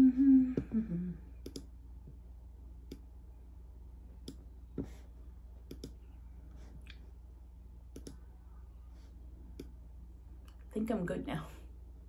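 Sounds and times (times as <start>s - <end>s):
low steady hum: 0.0s - 12.0s
computer mouse clicking: 1.4s - 1.7s, 4.2s - 4.4s, 5.7s - 6.0s, 7.9s - 8.2s.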